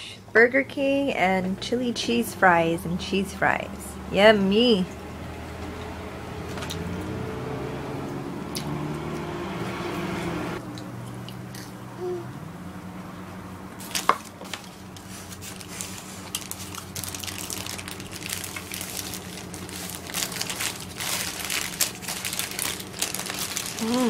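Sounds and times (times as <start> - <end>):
person chewing a burger: 14.9 - 24.0.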